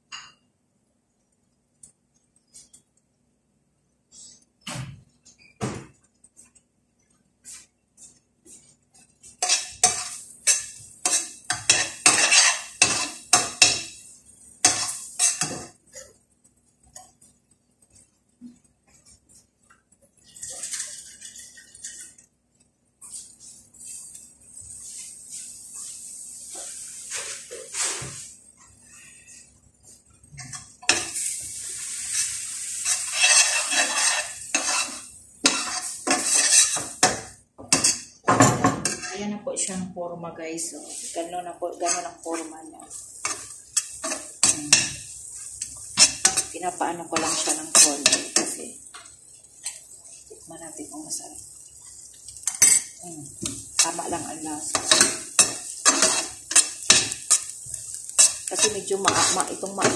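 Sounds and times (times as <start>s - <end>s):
liquid sizzling in hot oil: 7.4s - 39.7s, 40.6s - 59.9s
metal spoon scraping a pan: 9.0s - 16.1s, 20.2s - 22.3s, 30.4s - 31.4s, 32.0s - 39.7s, 40.8s - 50.4s, 52.4s - 59.9s.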